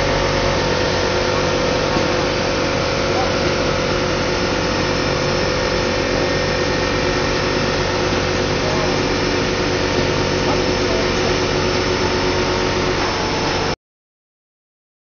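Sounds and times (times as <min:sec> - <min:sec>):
machine humming with tones: 0:00.0 - 0:13.8.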